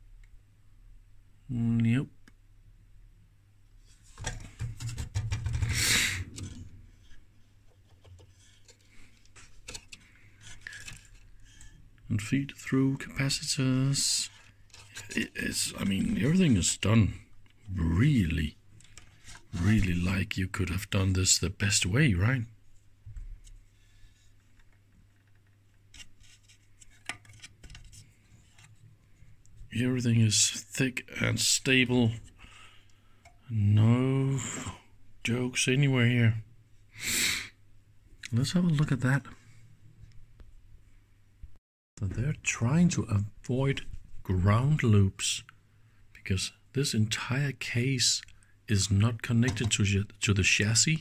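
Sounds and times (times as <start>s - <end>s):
low steady hum: 0.0s - 36.9s
rubbing scrape: 3.9s - 7.2s.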